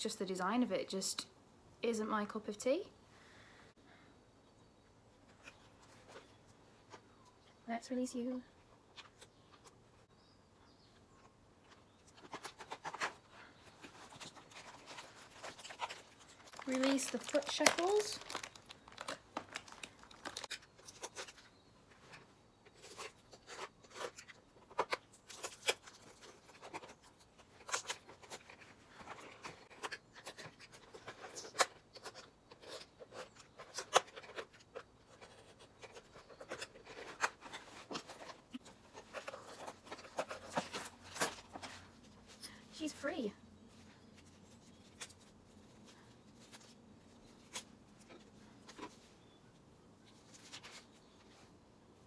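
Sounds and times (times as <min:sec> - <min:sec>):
plastic packaging crinkling: 0:12.1 - 0:21.5.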